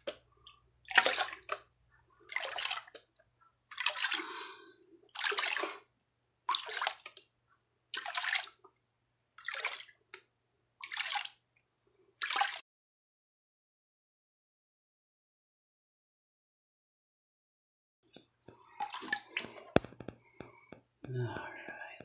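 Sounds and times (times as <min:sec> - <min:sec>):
water sloshing in plastic pan: 0:00.0 - 0:07.3, 0:07.9 - 0:08.8, 0:09.4 - 0:11.4, 0:18.0 - 0:20.7.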